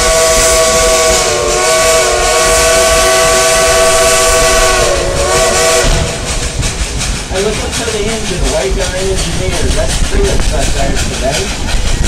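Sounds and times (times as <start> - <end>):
steam whistle blast: 0.0 - 6.5
moving train rushing: 0.0 - 12.0.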